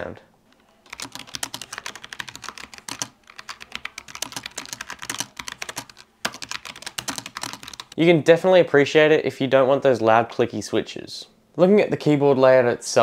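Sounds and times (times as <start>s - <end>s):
mechanical keyboard typing: 0.5s - 8.0s.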